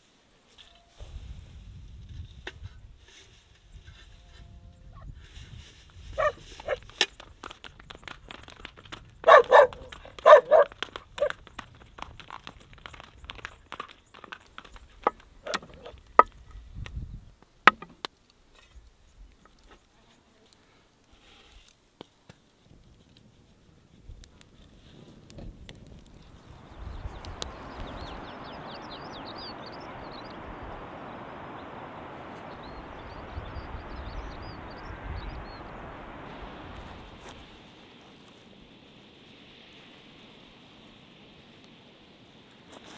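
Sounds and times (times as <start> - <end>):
horse hooves on gravel: 5.9 - 16.6
dog barking: 6.2 - 6.8, 9.2 - 11.3
steady rushing noise: 25.5 - 42.8
small birds chirping: 25.6 - 38.2.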